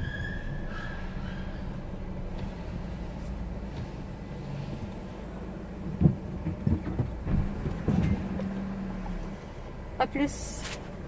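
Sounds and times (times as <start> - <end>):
car cabin low hum: 0.0 - 11.0
dull thumps: 5.8 - 8.6.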